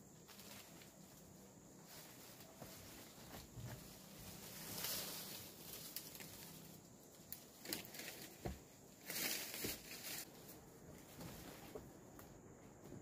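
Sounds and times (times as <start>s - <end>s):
dry leaves rustling and crunching: 0.2s - 10.4s.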